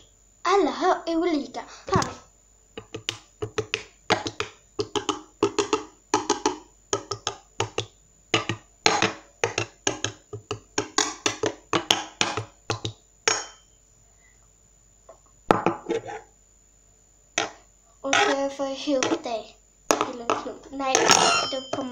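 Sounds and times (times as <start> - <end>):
knife tapping on tabletop: 2.8 - 13.6.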